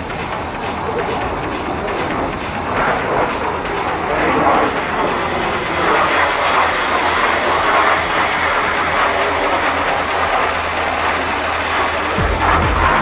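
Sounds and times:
jets flying overhead: 0:00.0 - 0:13.0
music with a regular beat: 0:00.0 - 0:13.0.

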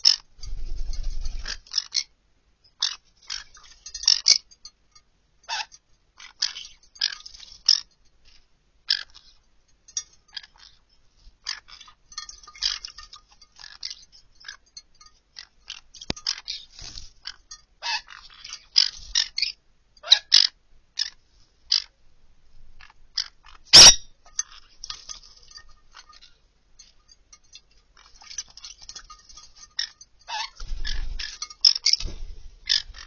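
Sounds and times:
birds splashing and fluttering in water: 0:00.0 - 0:02.1, 0:02.8 - 0:19.6, 0:22.8 - 0:33.0.

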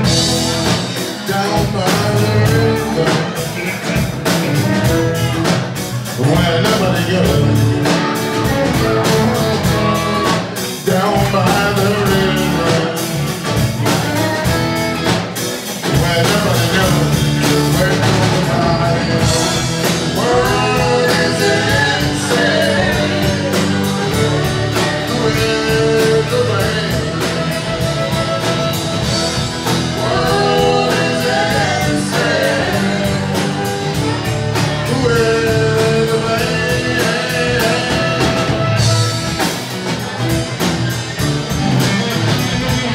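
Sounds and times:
drum kit beat: 0:00.0 - 0:42.9
strummed acoustic guitar: 0:00.0 - 0:42.9
fiddle playing bending lines: 0:18.5 - 0:31.2.

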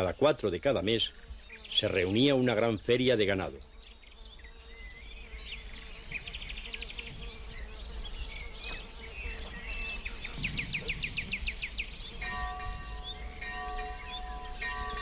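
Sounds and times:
small birds chirping: 0:00.0 - 0:15.0
bell-like ringing tones: 0:12.2 - 0:15.0.

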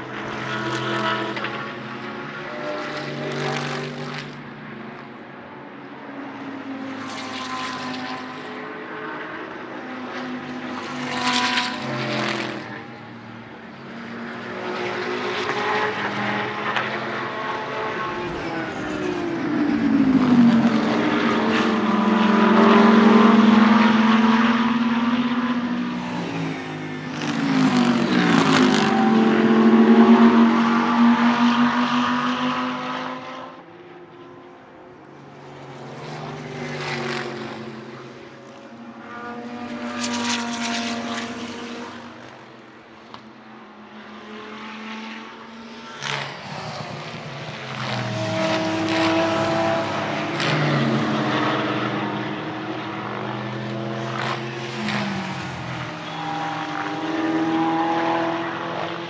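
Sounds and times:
race car engines passing: 0:00.0 - 0:59.0.

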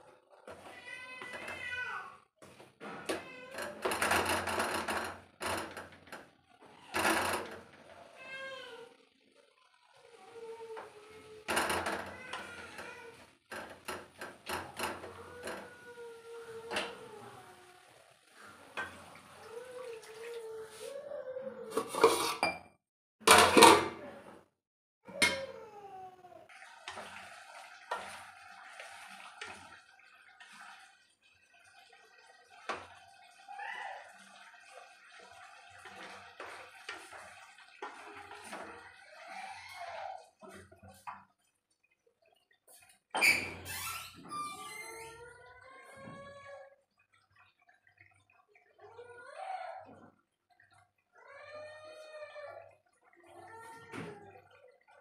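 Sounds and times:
low sizzle: 0:15.1 - 0:19.5
spatula scraping a pan: 0:21.7 - 0:22.5, 0:35.4 - 0:38.8
spatula scraping and knocking a pan: 0:21.8 - 0:22.6.

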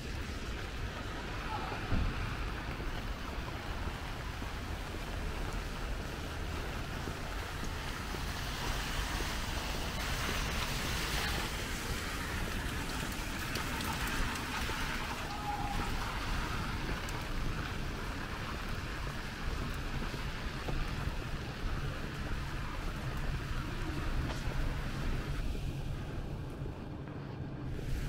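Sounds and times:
tyre hiss of passing vehicle: 0:00.0 - 0:26.3, 0:27.3 - 0:28.0
steady rain: 0:00.0 - 0:28.0
traffic on wet roads: 0:00.0 - 0:28.0.

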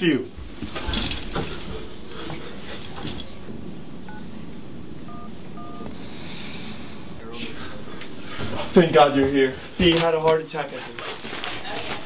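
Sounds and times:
low background hum: 0:00.0 - 0:12.0
two-tone keypad beeps: 0:05.1 - 0:05.9.

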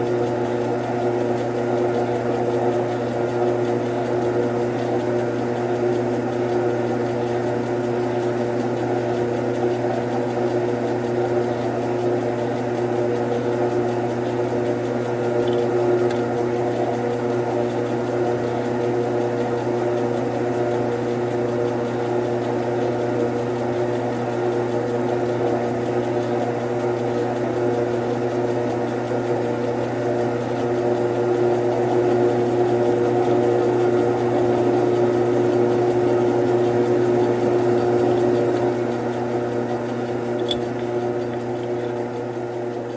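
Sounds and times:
metal lathe motor hum: 0:00.0 - 0:42.9.

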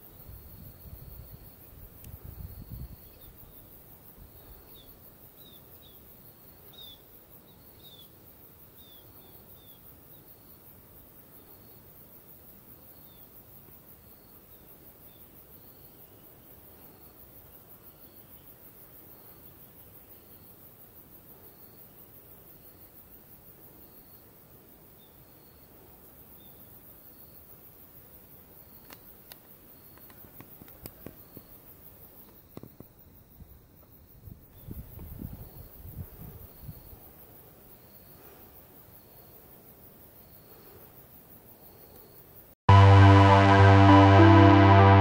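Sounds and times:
falling chirps: 0:42.7 - 0:45.0
short high repeating note: 0:42.7 - 0:45.0.

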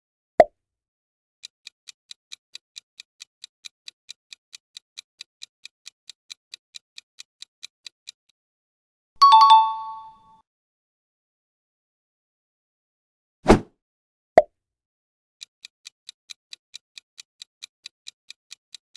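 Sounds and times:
clock-like ticking: 0:01.4 - 0:08.3, 0:15.4 - 0:18.9
bright chime: 0:09.2 - 0:10.2.

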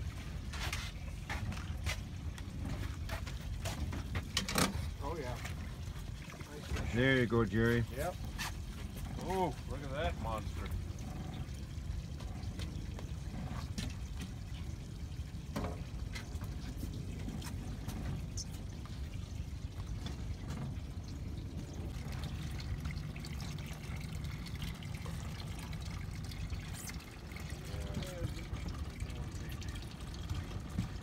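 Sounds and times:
splashes and knocks: 0:00.0 - 0:07.0
water trickling and dripping: 0:00.0 - 0:31.0
steady low rumble: 0:08.8 - 0:31.0.

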